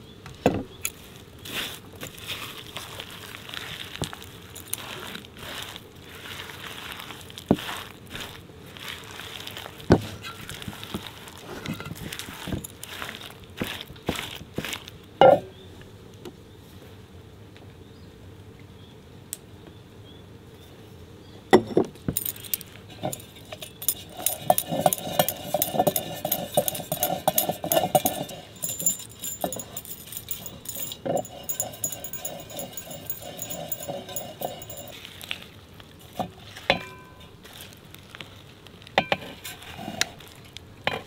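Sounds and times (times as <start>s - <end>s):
dishes and utensils clattering: 21.6s - 35.0s.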